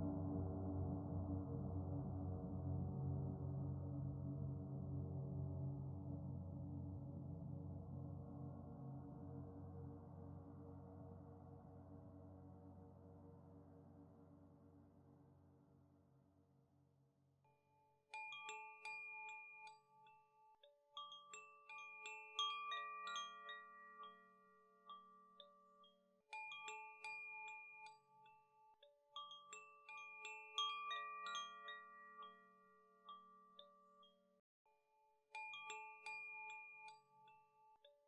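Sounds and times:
bell-like mallet melody: 17.7s - 38.0s.

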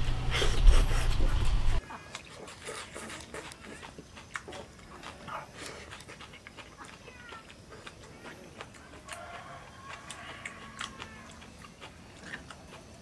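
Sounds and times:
wet chewing: 0.3s - 13.0s.

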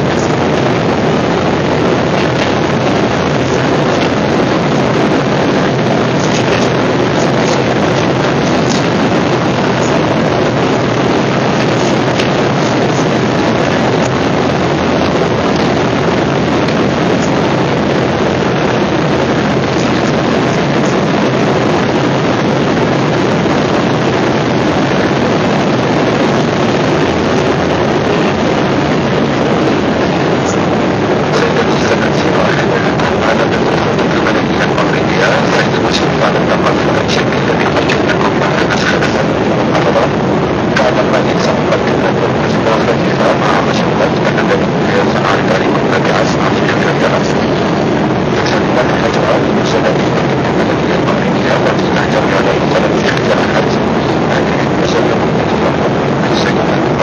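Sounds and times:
airliner cabin engine noise: 0.0s - 57.0s.

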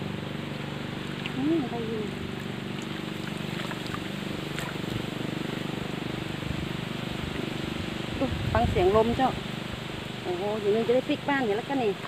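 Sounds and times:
low fluttering hum: 0.0s - 12.0s
strong wind blowing: 7.7s - 9.4s.

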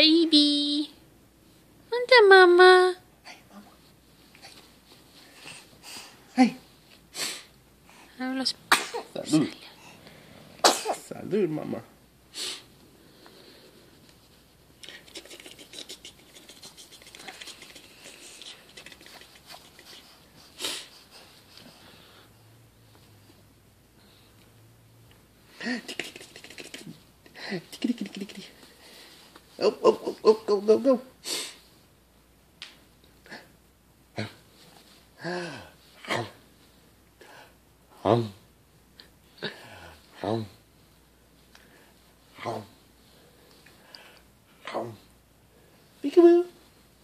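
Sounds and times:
rustling near microphone: 3.7s - 7.1s.

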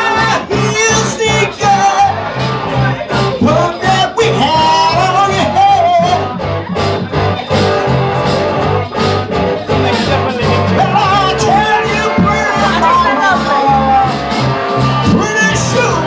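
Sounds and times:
man singing into microphone: 0.0s - 6.4s, 10.0s - 14.4s, 15.0s - 16.0s
bass guitar: 0.0s - 16.0s
electric guitars: 0.0s - 16.0s
steady beat: 0.0s - 16.0s.

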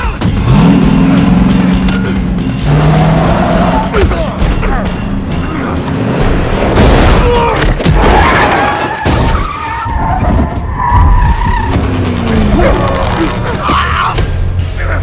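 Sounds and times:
engine and road rumble: 0.0s - 7.0s, 7.6s - 15.0s
car tyres squealing: 8.0s - 14.2s.

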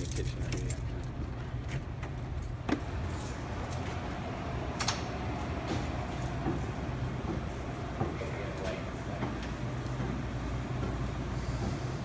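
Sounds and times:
keys jangling: 0.0s - 1.2s, 2.4s - 3.8s
steady low hum: 0.0s - 12.0s.

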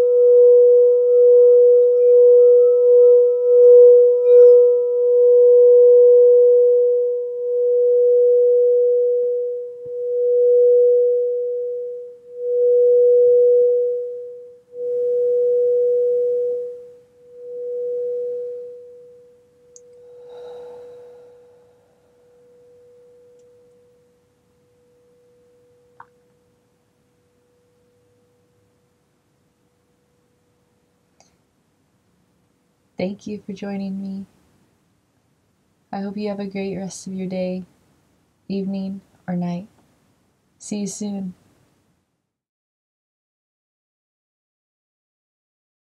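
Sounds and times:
singing bowl ringing: 0.0s - 28.6s.

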